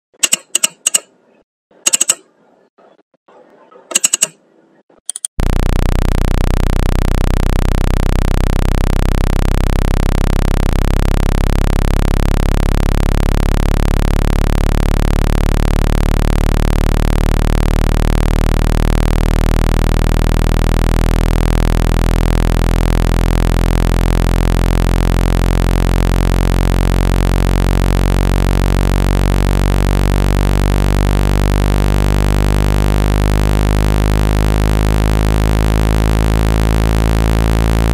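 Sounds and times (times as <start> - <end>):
short clicks: 0.0 - 1.2, 1.9 - 2.3, 3.9 - 4.4, 5.1 - 5.4
low electronic tone: 1.9 - 2.3, 3.9 - 4.4, 5.1 - 37.9.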